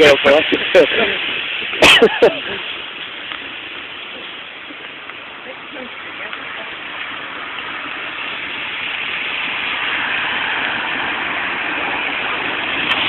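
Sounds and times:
vehicle approaching: 0.0 - 13.0.

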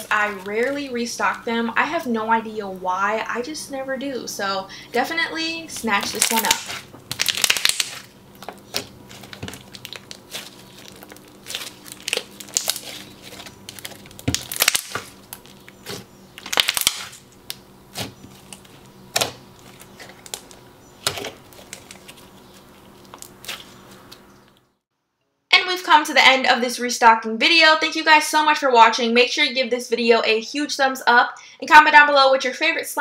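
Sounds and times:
slime squelching and popping: 5.8 - 23.8.

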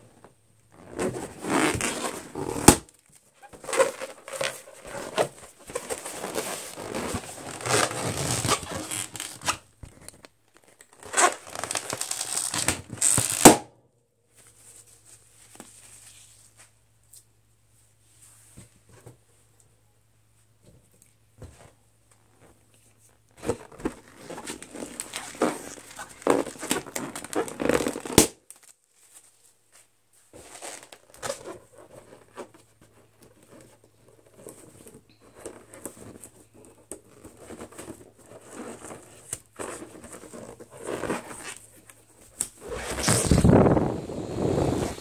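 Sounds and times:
balloon bursting: 42.6 - 45.0
fingernails scratching balloon: 42.6 - 45.0.

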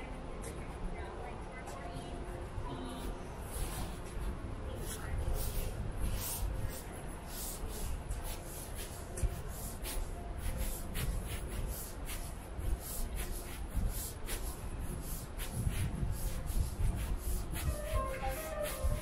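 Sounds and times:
low city rumble: 0.0 - 19.0
footsteps walking: 3.5 - 19.0.

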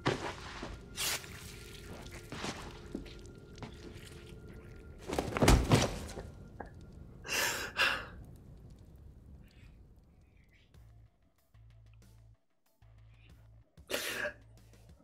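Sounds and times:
dull thumps and knocks: 5.1 - 6.7.

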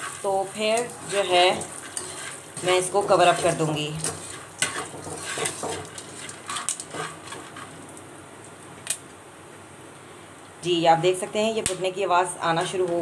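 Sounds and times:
metal spatula scraping a wok: 0.0 - 7.8
faint oil sizzle: 0.0 - 8.6.

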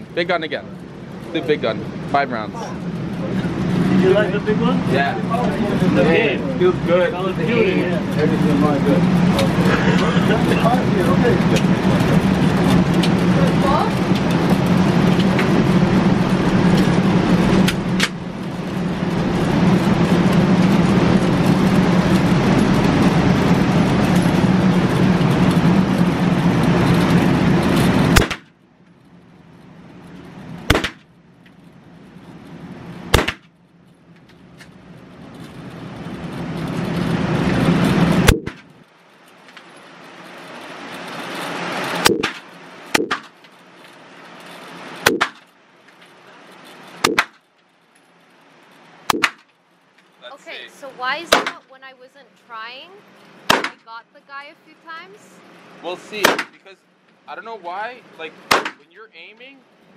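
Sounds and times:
loud steady background noise: 0.0 - 59.9
handgun shots: 28.2 - 28.5, 30.7 - 31.0, 33.2 - 33.5, 53.5 - 53.8, 58.5 - 58.8.

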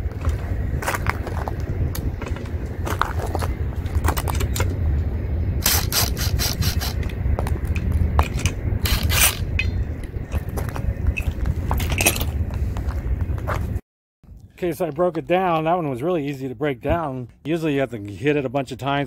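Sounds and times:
steady low rumble: 0.0 - 19.0
cordless drill: 5.6 - 7.0, 8.9 - 9.4
tool scraping and clicking on rim: 5.6 - 7.1, 8.2 - 9.7.

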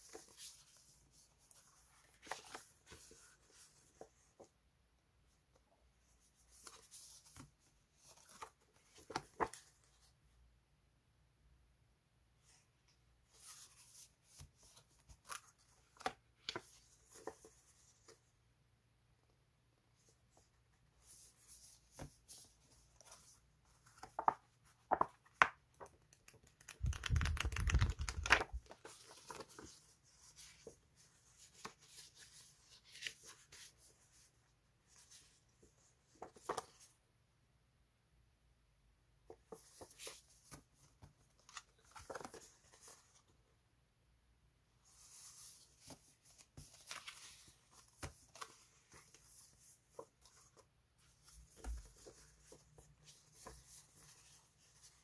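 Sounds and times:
paper sheets rustling: 26.5 - 34.3, 39.5 - 43.2.

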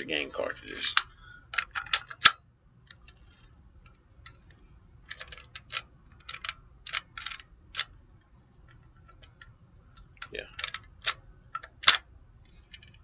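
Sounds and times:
plastic toy parts clicking: 0.9 - 4.4, 5.1 - 8.0, 8.7 - 12.0.

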